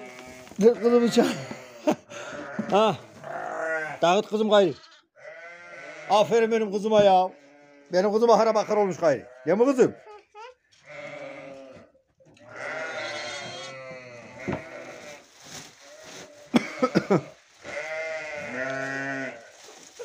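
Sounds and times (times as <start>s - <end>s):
sheep and goats bleating: 0.0s - 20.0s.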